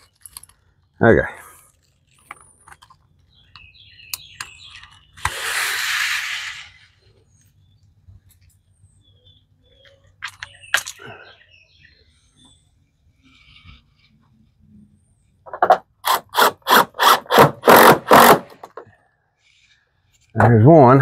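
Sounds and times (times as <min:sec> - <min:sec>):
birds chirping: 0:00.0 - 0:15.5
hissing rustle: 0:05.2 - 0:07.0.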